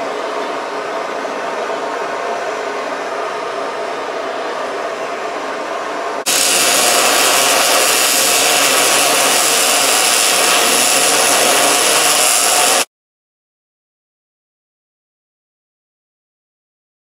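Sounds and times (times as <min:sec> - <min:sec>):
gas torches hissing: 0:06.3 - 0:12.9
welding arc crackling: 0:06.3 - 0:12.9.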